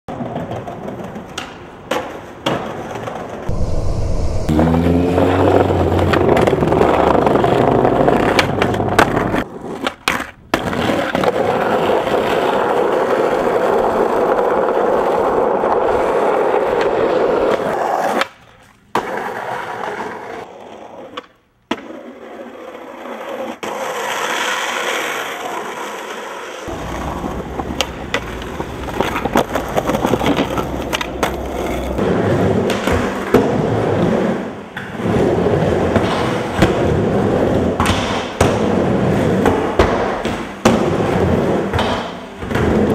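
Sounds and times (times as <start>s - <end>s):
skateboard clacks: 0.1s - 3.3s, 21.1s - 42.9s
skateboard wheels rolling: 0.1s - 3.6s, 5.9s - 42.9s.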